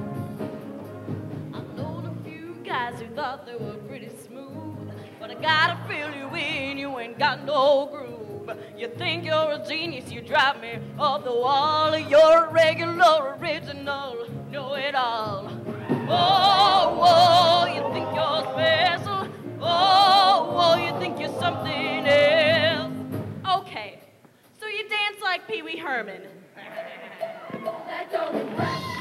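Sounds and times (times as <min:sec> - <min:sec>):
choir singing: 0:15.9 - 0:23.0, 0:27.4 - 0:29.0.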